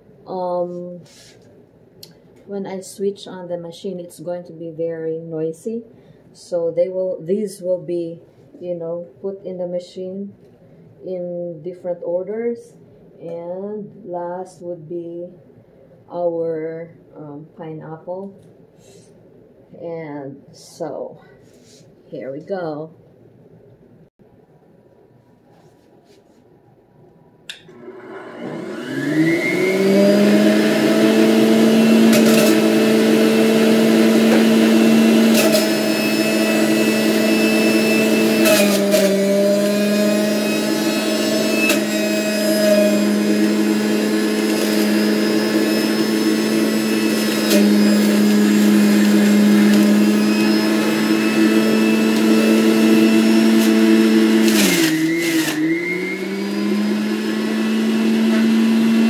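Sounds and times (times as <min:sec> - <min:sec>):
juicer motor whine: 0:27.5 - 0:59.0.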